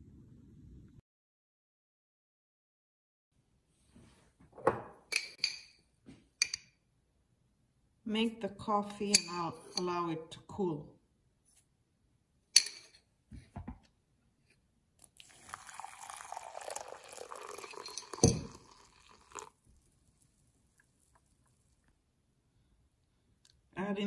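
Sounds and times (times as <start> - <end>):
hot water pouring into glass: 15.0 - 21.9.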